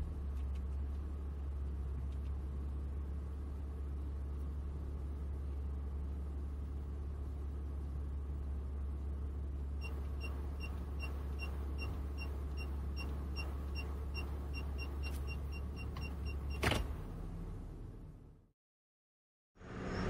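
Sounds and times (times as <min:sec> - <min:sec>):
car engine idling: 0:00.0 - 0:18.4
parking sensor beeps: 0:09.8 - 0:16.9.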